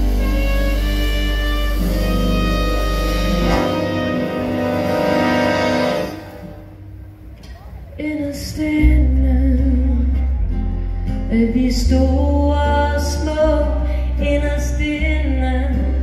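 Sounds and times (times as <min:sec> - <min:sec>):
big band playing: 0:00.0 - 0:08.5.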